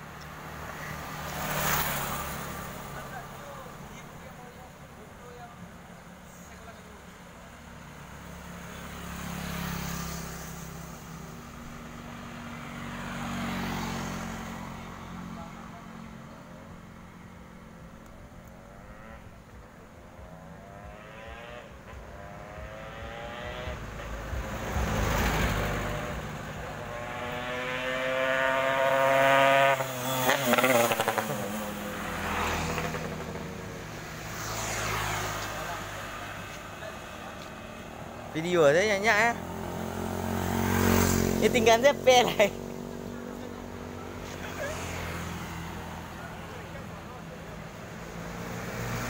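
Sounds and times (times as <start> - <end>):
two-stroke motorcycle passing: 0.0 - 49.0.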